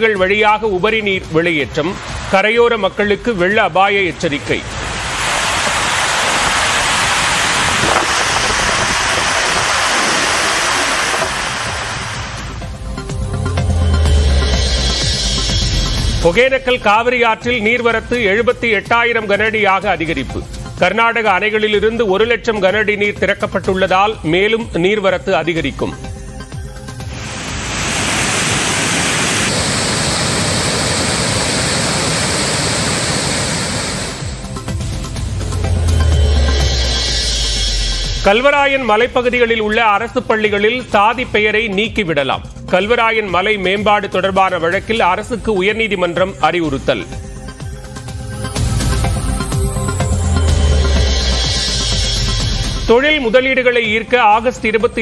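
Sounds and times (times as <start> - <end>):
water rushing through spillway: 1.8 - 3.0, 3.6 - 12.6, 27.1 - 34.4.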